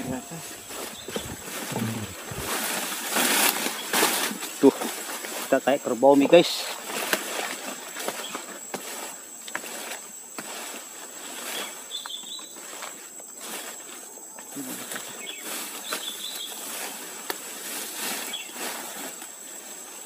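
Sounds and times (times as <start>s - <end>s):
high-pitched insect drone: 0.0s - 2.8s
leaves and stems rustling: 0.0s - 20.0s.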